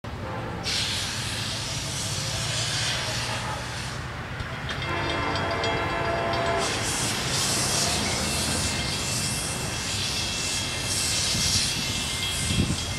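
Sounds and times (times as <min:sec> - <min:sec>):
diesel locomotive rumble: 0:00.0 - 0:12.9
train horn blast: 0:00.1 - 0:01.2, 0:02.6 - 0:04.1, 0:04.8 - 0:09.2
loud hiss: 0:00.6 - 0:04.2, 0:06.6 - 0:12.9.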